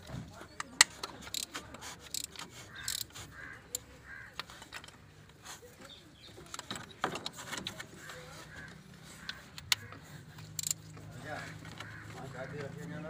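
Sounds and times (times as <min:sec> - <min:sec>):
hand tools clicking on metal bolts: 0:00.0 - 0:05.4, 0:09.2 - 0:11.1
crow cawing: 0:02.7 - 0:04.5, 0:08.0 - 0:10.3, 0:11.4 - 0:12.5.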